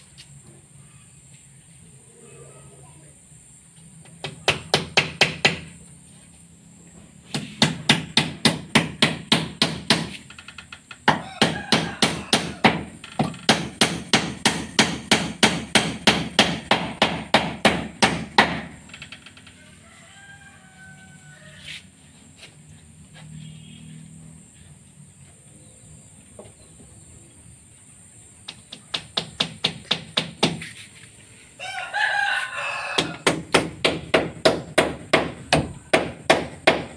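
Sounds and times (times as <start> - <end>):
hammer striking wooden board: 4.2 - 5.7, 7.3 - 10.2, 11.0 - 18.8, 28.5 - 30.7, 33.0 - 36.9.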